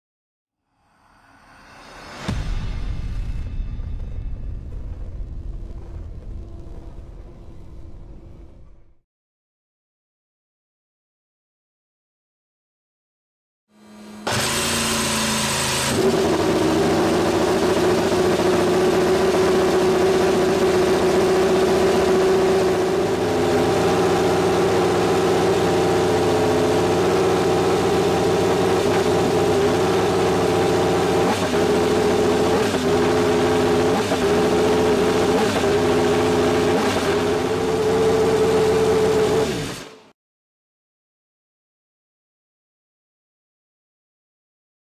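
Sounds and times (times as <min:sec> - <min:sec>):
racing car engine at high idle: 0:13.8 - 0:39.8.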